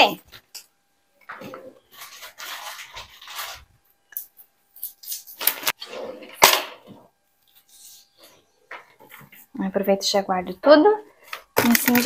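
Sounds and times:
groceries rustling: 0:01.3 - 0:03.9, 0:11.1 - 0:12.0.

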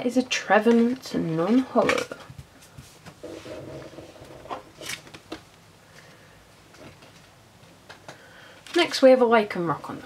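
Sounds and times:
trading cards and packaging rustling: 0:03.0 - 0:05.6.

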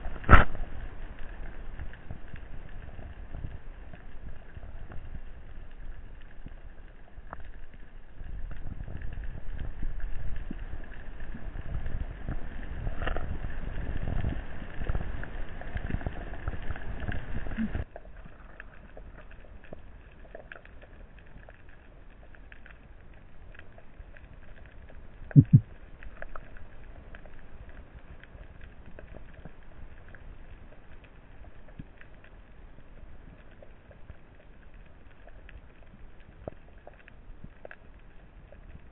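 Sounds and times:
muffled underwater rushing: 0:00.0 - 0:38.9
underwater hiss with faint clicks: 0:00.0 - 0:38.9
low double thump: 0:25.4 - 0:25.7.

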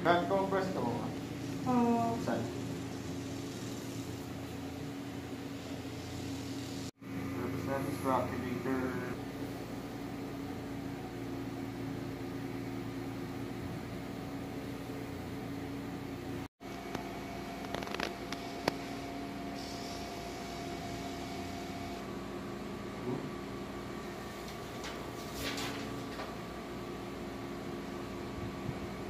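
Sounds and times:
massage gun motor hum: 0:00.3 - 0:07.0.

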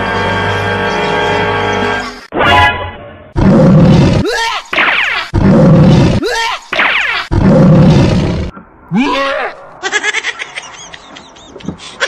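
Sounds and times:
lion roaring: 0:03.4 - 0:04.3, 0:05.3 - 0:06.2, 0:07.3 - 0:09.6.

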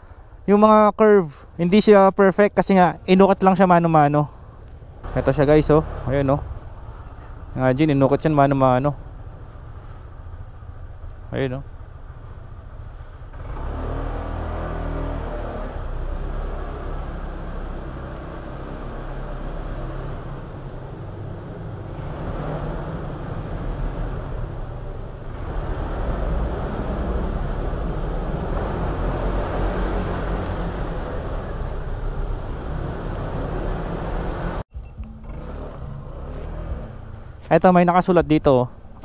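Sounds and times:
tyres on wet road: 0:04.7 - 0:34.6.

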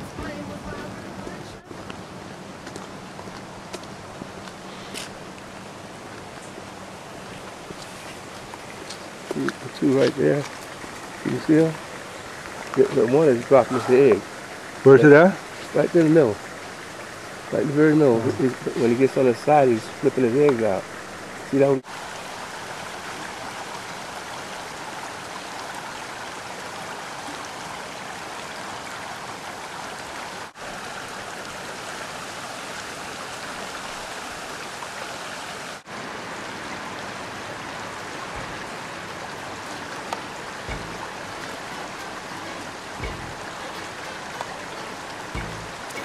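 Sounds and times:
creek water running over gravel: 0:00.0 - 0:46.0
soft low bumps: 0:38.4 - 0:39.0, 0:39.6 - 0:46.0.

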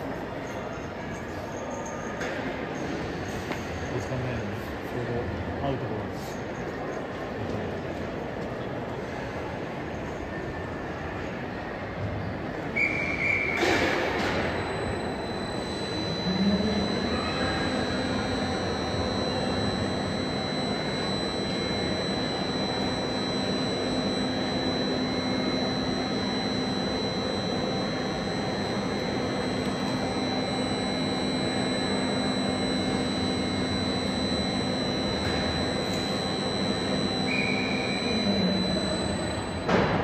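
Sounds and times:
high-pitched whine: 0:12.8 - 0:40.0
electric train equipment whirring: 0:13.6 - 0:40.0
low hum: 0:14.1 - 0:40.0.

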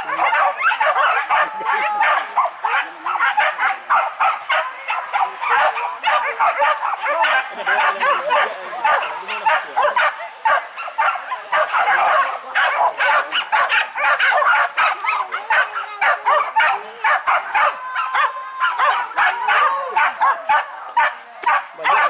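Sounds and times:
dogs barking and yelping: 0:00.0 - 0:22.0.

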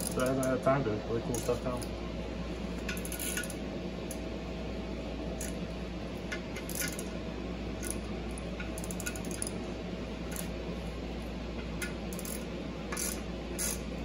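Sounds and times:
hand ratchet clicking: 0:00.0 - 0:00.6, 0:01.3 - 0:01.9, 0:02.9 - 0:04.2, 0:06.6 - 0:07.1, 0:08.6 - 0:09.6, 0:10.3 - 0:10.5, 0:11.8 - 0:13.8
air conditioner humming: 0:00.0 - 0:14.0.

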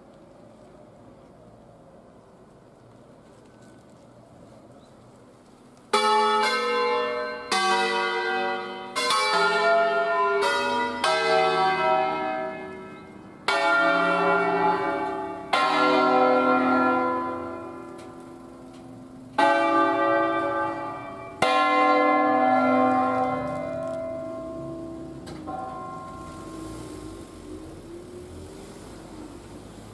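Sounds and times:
church bells ringing: 0:05.9 - 0:27.8.

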